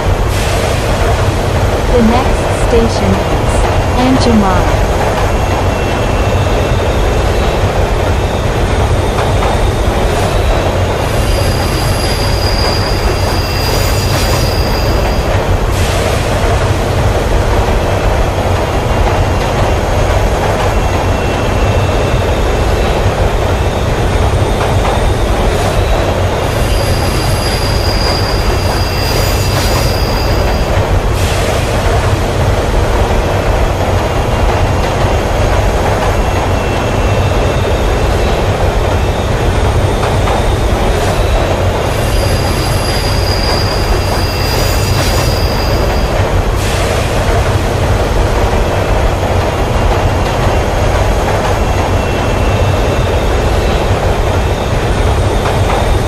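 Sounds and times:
metro train rumbling on rails: 0.0 - 56.0
high wheel squeal: 11.1 - 15.2, 26.5 - 30.6, 41.2 - 46.2.

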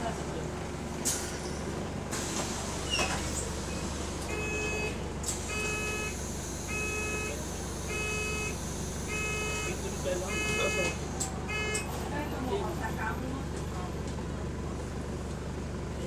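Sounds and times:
bus engine droning: 0.0 - 16.0
electronic warning beeps: 4.3 - 11.9.

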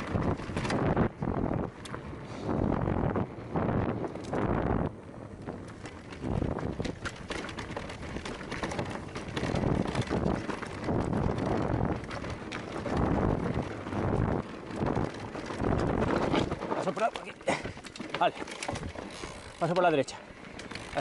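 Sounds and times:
wind buffeting microphone: 0.0 - 19.6
bike rattling over bumps: 0.0 - 21.0
tyres crunching over stones: 5.6 - 21.0.

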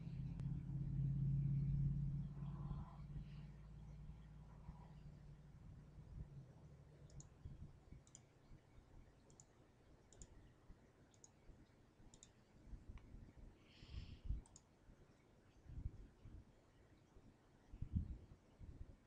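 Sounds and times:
computer mouse clicks: 7.0 - 8.6, 9.2 - 10.5, 11.1 - 13.1, 14.0 - 15.3.

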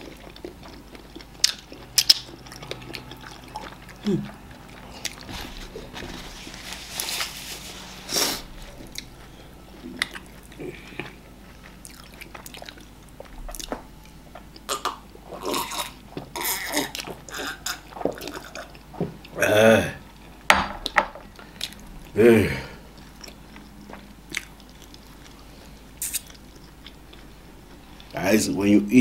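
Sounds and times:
lip smacking and sucking: 0.0 - 5.3, 26.0 - 27.0
wet chewing: 0.0 - 19.4, 21.3 - 22.2, 22.8 - 28.2.

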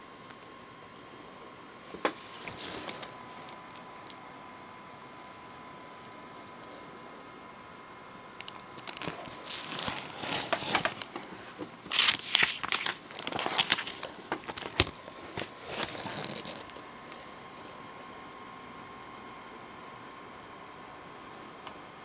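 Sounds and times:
paper pages rustling: 8.5 - 17.3.

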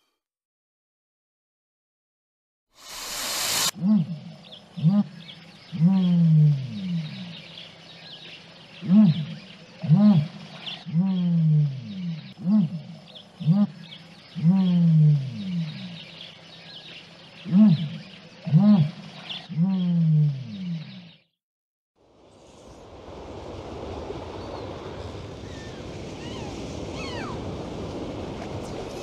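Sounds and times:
small birds chirping: 3.8 - 21.3
large animal low calls: 14.4 - 16.0.

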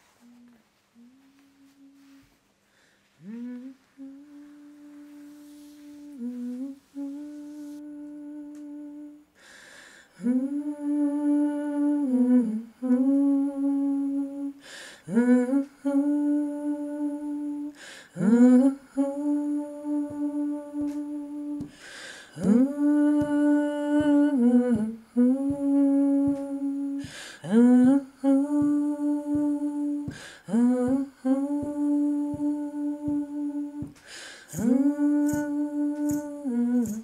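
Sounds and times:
person humming: 0.0 - 2.4, 3.2 - 9.4, 10.2 - 37.0
breath intake: 21.6 - 22.4, 27.0 - 27.4, 30.1 - 30.5, 34.0 - 34.6.

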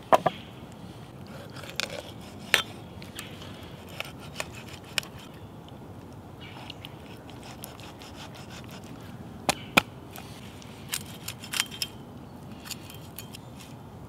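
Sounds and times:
cleaver cracking through chicken bone: 1.3 - 5.3.

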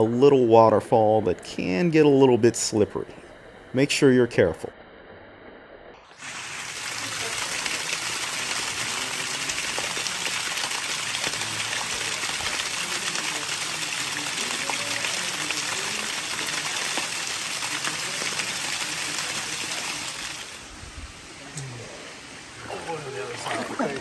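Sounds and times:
small waterfall splashing: 6.1 - 24.0.

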